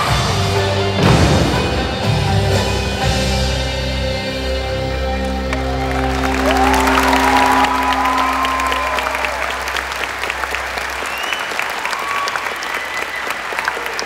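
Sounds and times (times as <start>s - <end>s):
held music chord: 0.0s - 10.8s
audience applauding: 5.2s - 14.0s.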